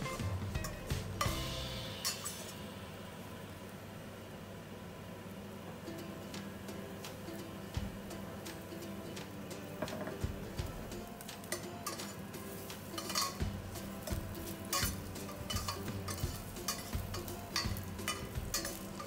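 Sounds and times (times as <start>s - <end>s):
background music: 0.0s - 2.4s, 5.8s - 19.0s
metal spoon scraping pan: 11.5s - 19.0s.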